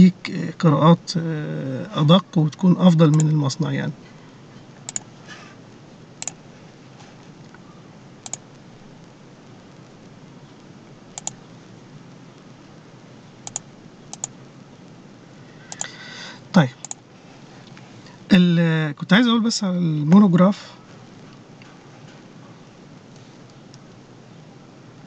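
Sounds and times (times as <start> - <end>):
faint steady hiss: 0.0 - 25.0
computer mouse clicks: 4.8 - 5.1, 8.2 - 8.4, 11.2 - 11.4, 13.4 - 14.3, 15.7 - 16.0, 16.8 - 17.0.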